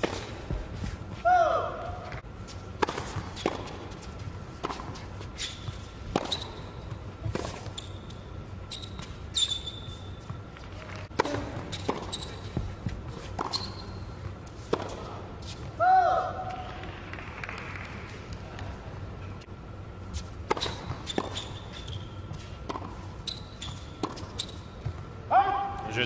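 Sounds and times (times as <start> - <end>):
tennis ball bouncing and struck: 2.8 - 3.9, 4.6 - 5.0, 5.6 - 7.9, 11.1 - 15.1, 20.4 - 25.0
short high squeaks: 5.3 - 6.8, 7.6 - 10.2, 11.7 - 12.6, 13.4 - 14.1, 23.2 - 24.7.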